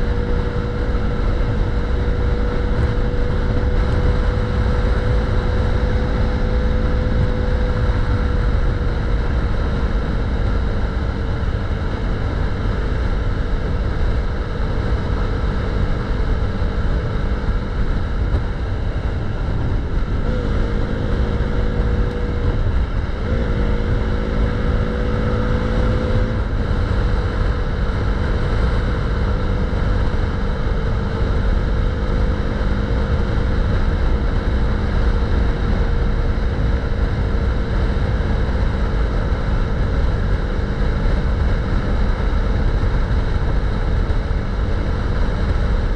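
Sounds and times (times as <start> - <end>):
motorcycle engine running: 0.0 - 45.9
wind rush on microphone: 0.0 - 45.9.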